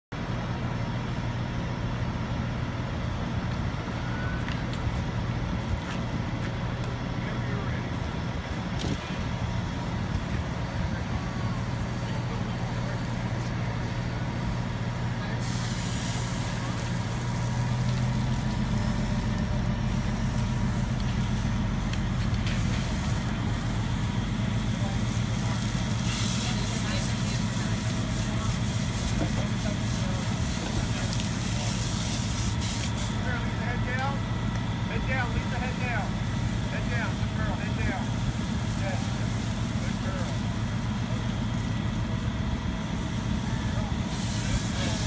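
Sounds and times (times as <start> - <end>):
fire engine engine running: 0.0 - 45.0
steady hiss: 10.0 - 34.0.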